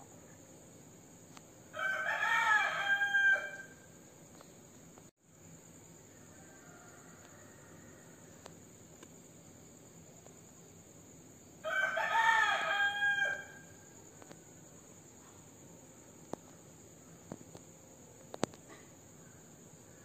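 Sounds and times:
crickets trilling: 0.0s - 20.0s
rooster crowing: 1.7s - 3.8s, 6.1s - 8.4s, 11.6s - 13.7s.

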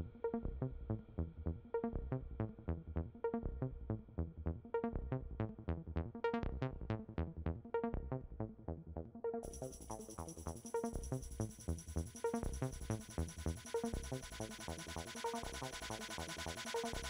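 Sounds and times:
electronic music with steady beat: 9.5s - 17.0s.

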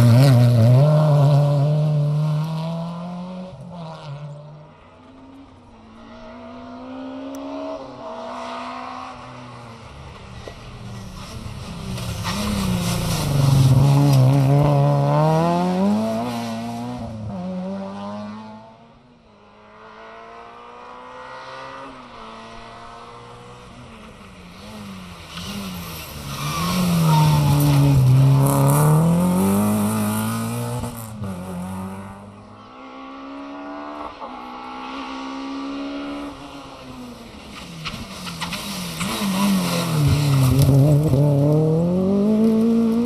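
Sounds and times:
rally car approaching: 0.0s - 43.0s
rally cars driving past: 0.0s - 43.0s.

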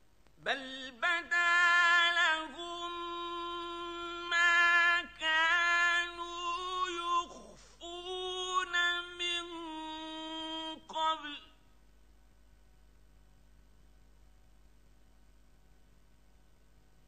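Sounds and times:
man chanting recitation: 0.4s - 11.6s.

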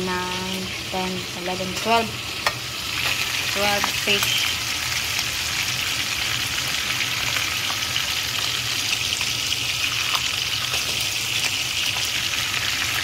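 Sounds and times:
fish sizzling in hot oil: 0.0s - 13.0s
oil crackles: 2.9s - 13.0s.

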